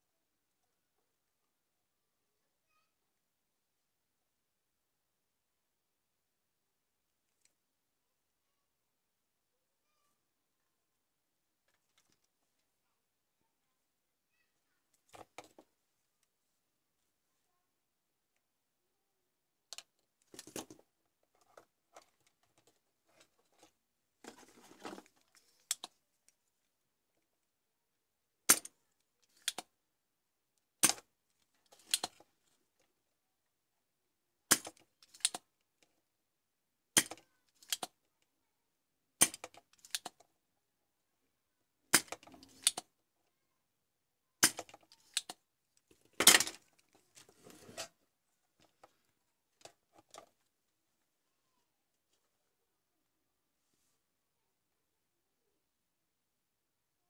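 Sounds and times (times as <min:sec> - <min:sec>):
small tools clicking and tapping: 0:34.5 - 0:35.5, 0:37.0 - 0:38.0, 0:39.2 - 0:40.2, 0:44.4 - 0:46.9.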